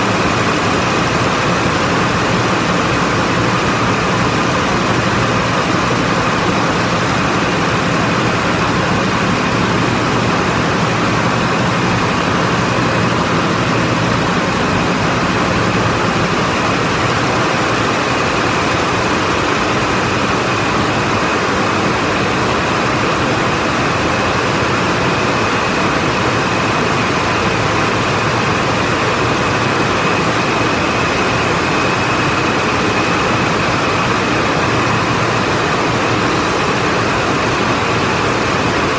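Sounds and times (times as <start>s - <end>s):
high machine whine: 0.0s - 38.9s
looms weaving: 0.0s - 38.9s.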